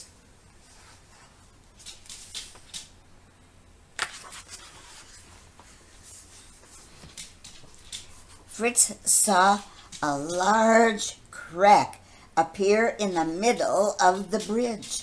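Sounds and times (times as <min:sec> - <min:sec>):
paper pages rustling: 0:00.7 - 0:02.9, 0:04.0 - 0:08.4
page turning snap: 0:01.8 - 0:02.9, 0:04.0 - 0:04.7
small paper ticks: 0:01.8 - 0:02.9, 0:07.0 - 0:08.4.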